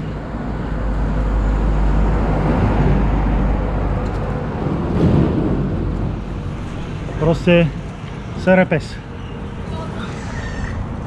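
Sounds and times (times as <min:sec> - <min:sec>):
wind rushing over microphone: 0:00.2 - 0:08.5.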